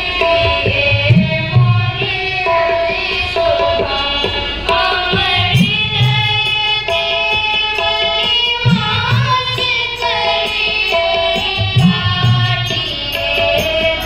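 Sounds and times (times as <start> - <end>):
harmonium: 0.0 - 14.0
tabla: 0.0 - 14.0
girls singing together: 0.1 - 14.0.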